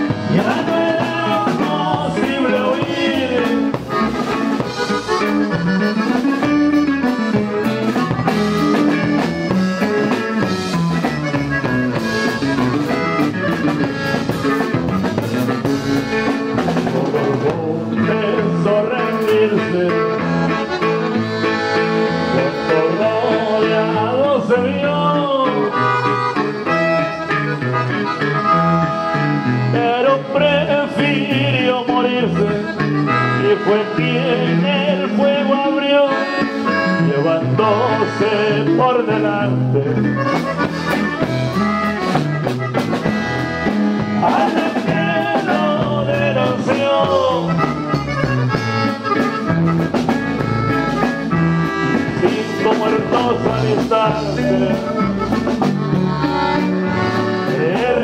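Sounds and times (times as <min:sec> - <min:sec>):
button accordion melody: 0:00.0 - 0:58.0
steady low bass line: 0:00.0 - 0:58.0
strummed guitar: 0:00.0 - 0:58.0.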